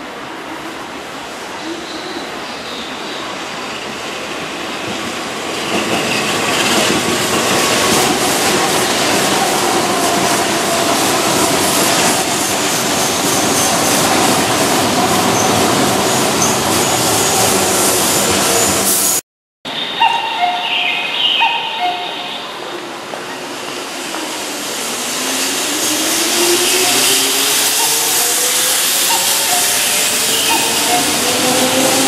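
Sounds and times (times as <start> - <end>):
train wheels running on rails: 0.1 - 19.2, 21.4 - 32.0
high wheel squeal: 25.2 - 32.0.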